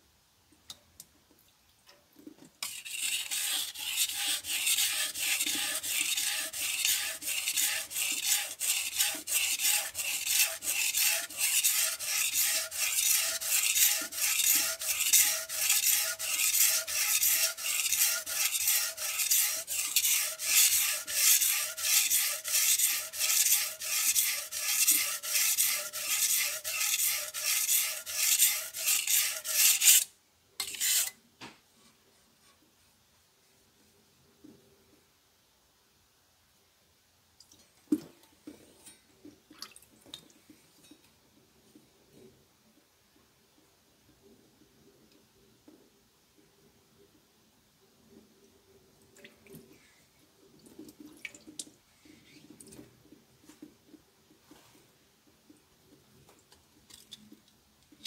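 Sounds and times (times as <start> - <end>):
knife scraping on whetstone: 2.6 - 31.2.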